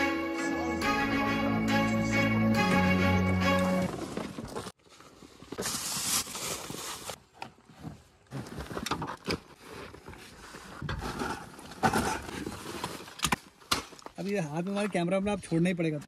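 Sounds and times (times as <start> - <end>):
rustling of backpacks and gear: 3.4 - 15.9.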